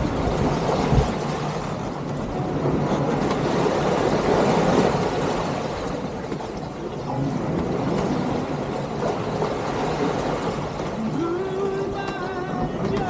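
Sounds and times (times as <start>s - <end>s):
wind and sea rushing: 0.0s - 13.0s.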